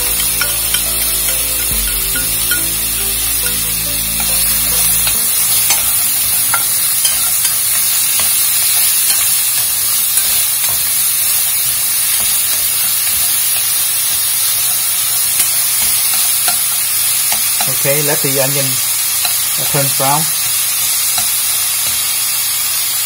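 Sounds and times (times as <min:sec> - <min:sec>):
chopsticks clicking against pan: 0:00.0 - 0:02.8
onion sizzling in oil: 0:00.0 - 0:23.0.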